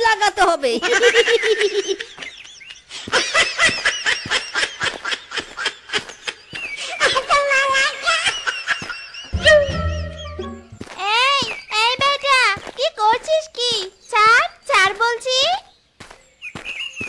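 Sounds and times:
cartoon character laughing: 0:09.4 - 0:10.6.

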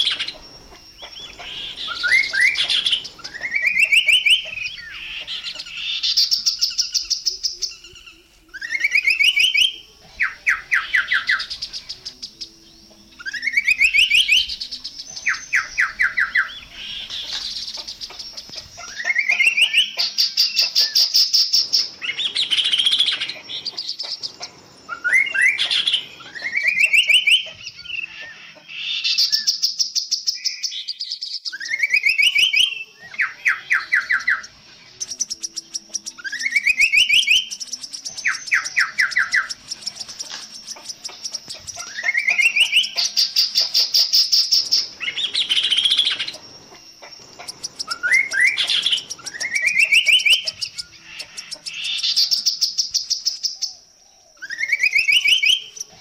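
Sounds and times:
high rapid bird chattering: 0:00.0 - 0:07.9, 0:13.6 - 0:29.1, 0:33.5 - 0:53.6
bird singing trill: 0:00.0 - 0:56.0.

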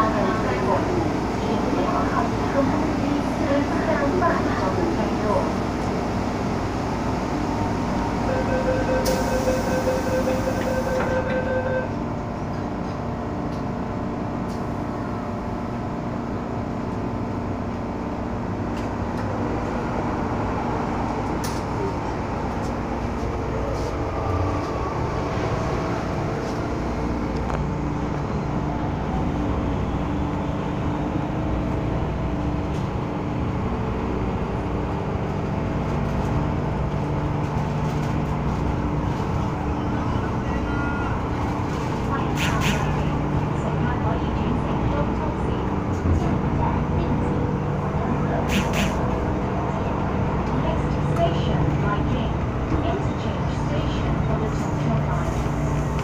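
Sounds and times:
train motors humming: 0:00.0 - 0:56.0
train rumbling along track: 0:00.0 - 0:56.0
door-closing warning beeps: 0:08.3 - 0:12.0
train doors hissing shut: 0:09.0 - 0:11.3, 0:42.4 - 0:43.0, 0:48.4 - 0:49.1.

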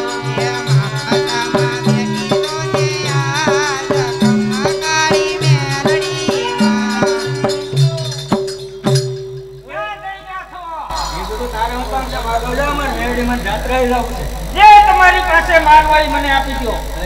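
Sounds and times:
held drone: 0:00.0 - 0:09.0, 0:10.9 - 0:17.0
ornamented melody line: 0:00.0 - 0:09.6
percussion beat: 0:00.0 - 0:09.9, 0:10.9 - 0:17.0
bass notes: 0:10.9 - 0:17.0.

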